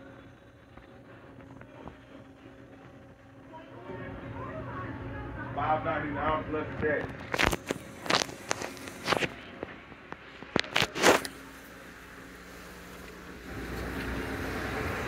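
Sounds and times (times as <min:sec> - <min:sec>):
car wash machinery rushing: 0:10.9 - 0:15.0.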